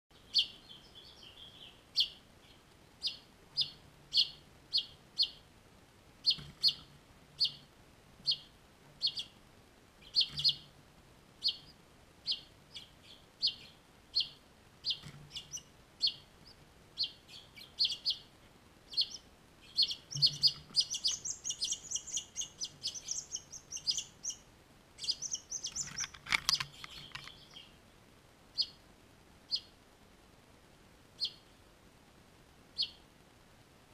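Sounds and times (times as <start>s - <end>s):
finches chirping: 0.1s - 5.5s, 6.2s - 9.4s, 10.0s - 10.8s, 11.4s - 27.8s, 28.5s - 28.8s, 29.5s - 29.8s, 31.2s - 31.6s, 32.8s - 33.0s.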